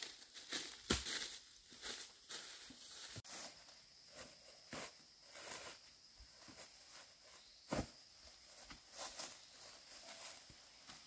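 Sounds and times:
rustling on dry leaf litter: 0:00.0 - 0:07.7, 0:08.4 - 0:11.0.

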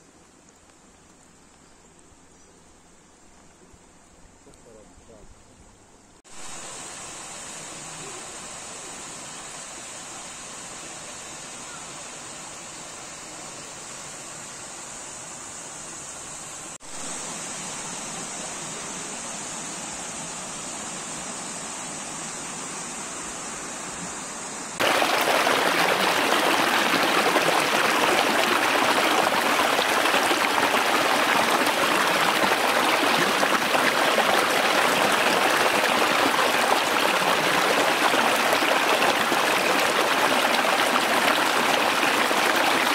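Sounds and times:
stream rushing over rocks: 0:24.8 - 0:42.9.

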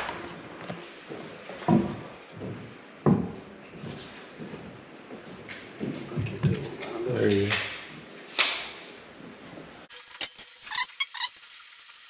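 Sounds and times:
wooden stair tread thud: 0:01.6 - 0:03.4.

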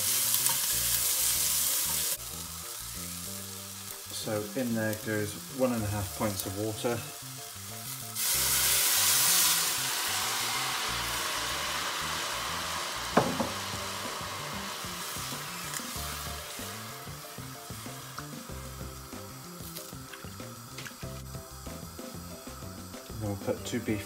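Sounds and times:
water hissing in a hot pot: 0:00.0 - 0:24.0
sharp knock: 0:13.2 - 0:13.6.

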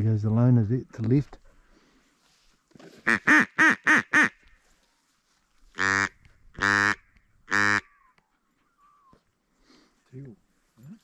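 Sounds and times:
duck call quacks: 0:03.0 - 0:04.4, 0:05.8 - 0:08.0.

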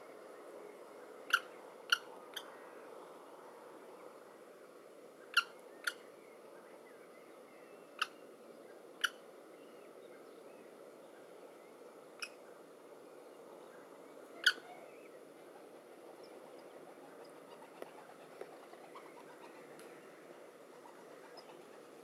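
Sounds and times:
steady low hiss: 0:00.0 - 0:22.0
kestrel calls: 0:14.4 - 0:14.9.

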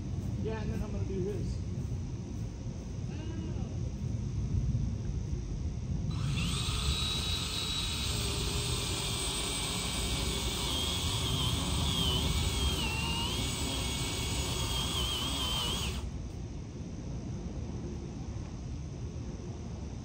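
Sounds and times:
pole saw motor whining: 0:06.1 - 0:16.1.

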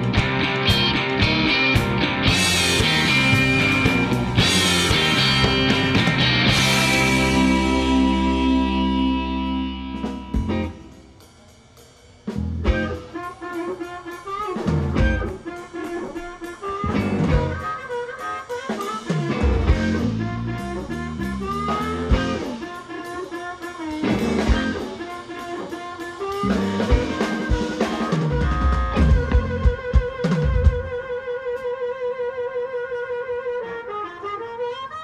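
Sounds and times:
harmonica wailing: 0:00.0 - 0:11.0, 0:12.7 - 0:35.0
electric guitar: 0:00.0 - 0:11.2, 0:12.3 - 0:35.0
bass: 0:00.0 - 0:11.3, 0:12.2 - 0:13.1, 0:14.6 - 0:15.4, 0:16.8 - 0:17.7, 0:19.1 - 0:22.6, 0:23.9 - 0:25.0, 0:26.4 - 0:31.0
full band chord ringing: 0:00.0 - 0:12.0
drum kit: 0:00.0 - 0:31.7.

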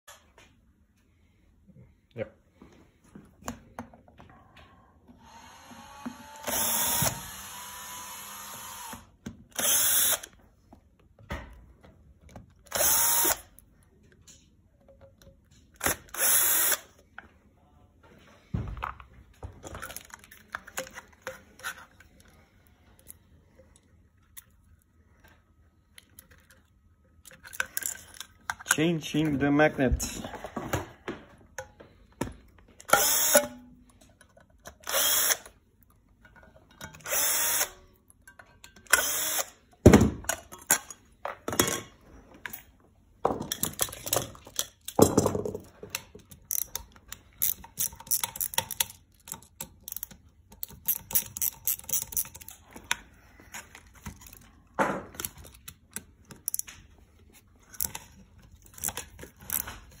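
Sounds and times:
cordless drill driving screws: 0:05.2 - 0:10.3, 0:12.7 - 0:13.5, 0:15.8 - 0:16.9, 0:32.9 - 0:33.5, 0:34.8 - 0:35.5, 0:37.0 - 0:37.8, 0:38.9 - 0:39.5
tools and metal parts clattering: 0:18.9 - 0:22.3, 0:27.2 - 0:31.0, 0:36.2 - 0:37.1, 0:39.8 - 0:56.8.

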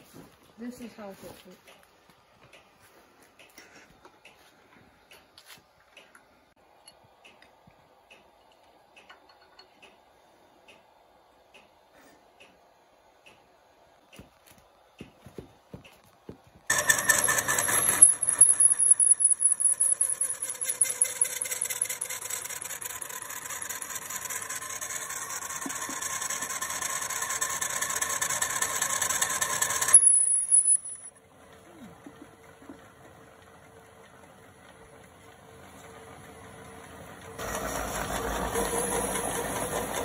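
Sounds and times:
lathe tool squealing on metal: 0:16.7 - 0:24.5.

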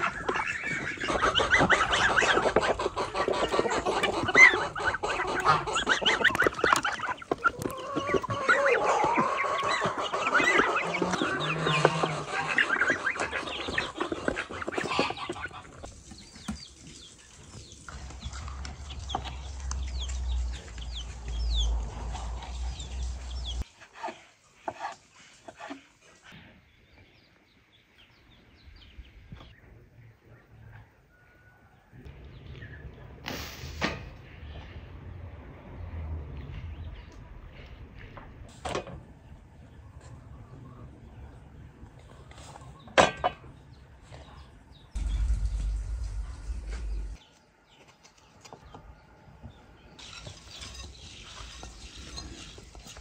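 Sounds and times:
geese and ducks calling: 0:00.0 - 0:15.9
chickens clucking: 0:00.0 - 0:26.4
low rumble: 0:44.9 - 0:47.2.

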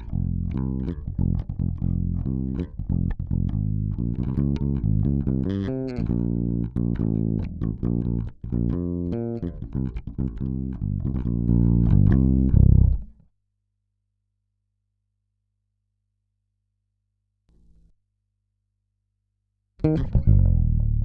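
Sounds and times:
electric bass guitar notes: 0:00.0 - 0:13.1, 0:19.8 - 0:21.0.

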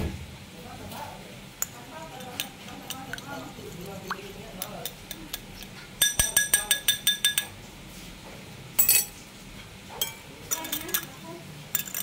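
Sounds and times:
whisk clinking against glass bowl: 0:01.7 - 0:03.5, 0:04.1 - 0:07.6.

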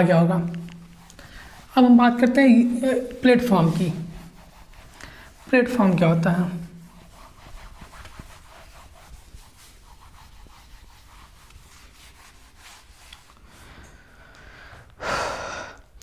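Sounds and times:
duster rubbing on whiteboard: 0:00.3 - 0:13.7.

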